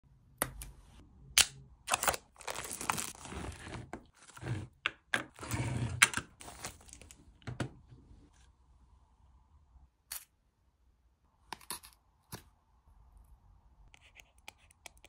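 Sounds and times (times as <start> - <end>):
plastic wrapping crinkling: 1.9 - 3.3.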